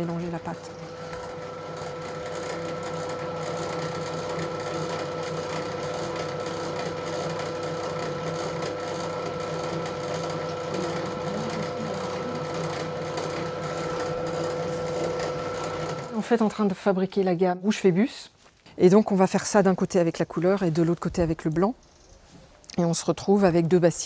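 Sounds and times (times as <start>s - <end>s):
grinding mill humming and whining: 0.0s - 16.6s.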